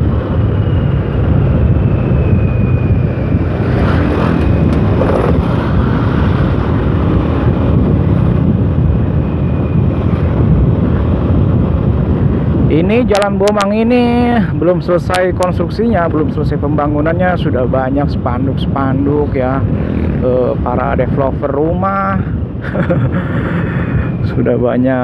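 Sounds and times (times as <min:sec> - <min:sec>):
high whine falling in pitch: 0:00.0 - 0:05.7
motorcycle engine: 0:00.4 - 0:08.6.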